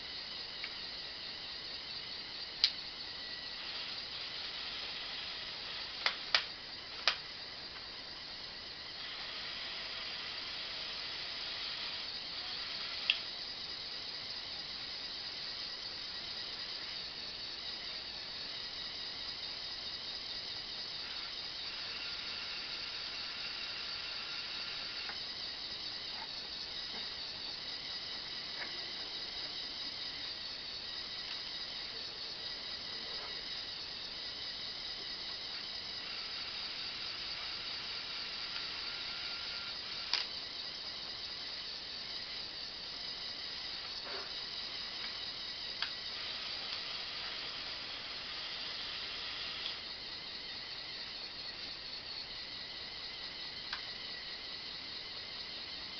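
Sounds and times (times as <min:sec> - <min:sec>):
small electric motors whining: 0:00.0 - 0:55.9
steady hiss: 0:00.0 - 0:55.9
sharp click: 0:02.6 - 0:02.8.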